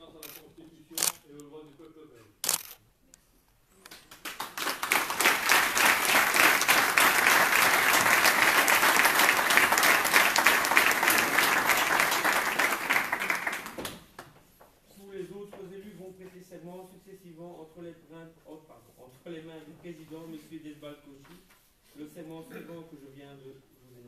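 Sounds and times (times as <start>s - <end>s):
crowd applauding: 3.9s - 14.1s.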